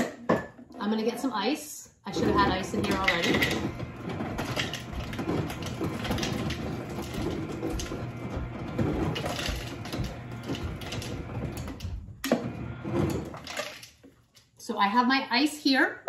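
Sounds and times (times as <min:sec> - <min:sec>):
ice dispenser crushing ice: 0:02.1 - 0:14.3.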